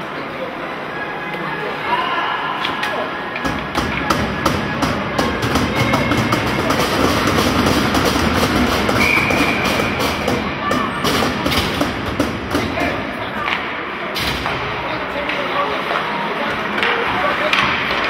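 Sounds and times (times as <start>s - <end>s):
noisy clatter of sharp clacks: 3.4s - 13.0s.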